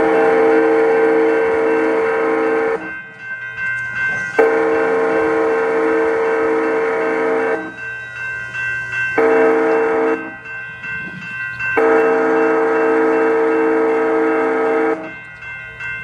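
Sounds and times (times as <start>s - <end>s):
locomotive air horn blasts: 0.0s - 2.9s, 4.4s - 7.7s, 9.2s - 10.3s, 11.8s - 15.1s.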